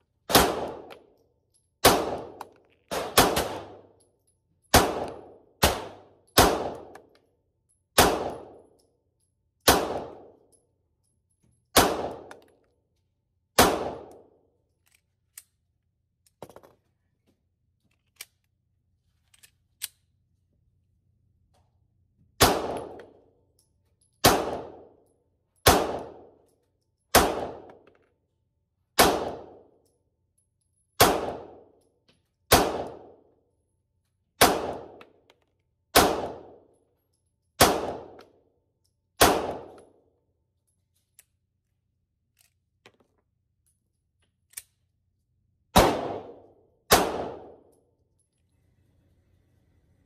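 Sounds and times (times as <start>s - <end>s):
pistol shots: 0.3s - 0.9s, 1.8s - 3.9s, 4.7s - 7.0s, 8.0s - 8.6s, 9.6s - 10.4s, 11.8s - 12.4s, 13.6s - 14.3s, 22.4s - 23.1s, 24.2s - 24.9s, 25.6s - 26.3s, 27.1s - 27.8s, 29.0s - 29.7s, 31.0s - 31.7s, 32.5s - 33.2s, 34.4s - 35.0s, 35.9s - 36.6s, 37.6s - 38.2s, 39.2s - 39.8s, 45.7s - 47.7s.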